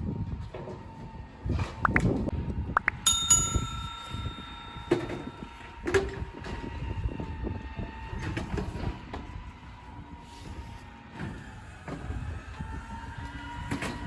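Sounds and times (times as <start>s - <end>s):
garbage truck idling with whine: 3.6s - 14.0s.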